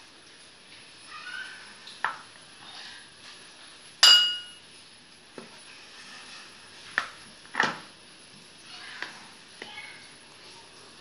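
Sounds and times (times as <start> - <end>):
scoop clinking against glass bowl: 4.0 - 4.6.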